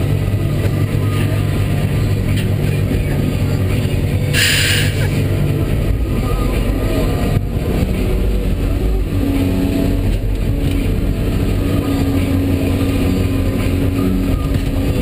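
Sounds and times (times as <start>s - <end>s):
excavator diesel engine: 0.0s - 15.0s
short hiss: 4.4s - 5.1s.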